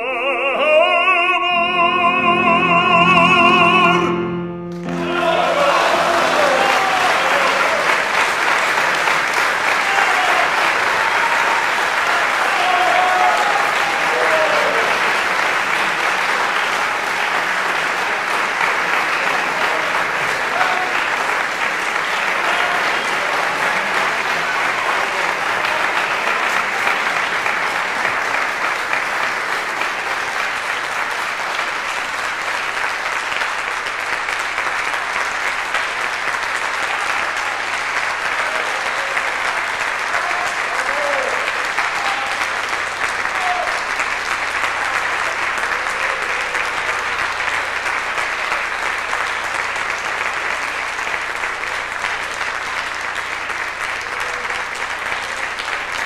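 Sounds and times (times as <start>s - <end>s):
audience applauding: 0.6s - 56.0s
voices calling out: 4.9s - 8.0s.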